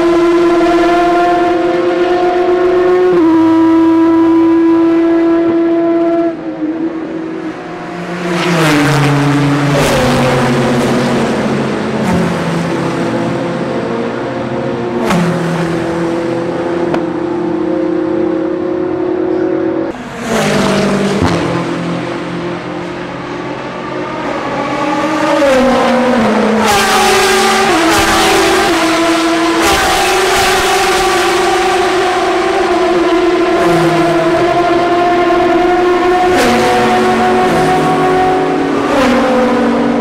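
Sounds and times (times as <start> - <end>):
race car engines passing: 0.0 - 40.0.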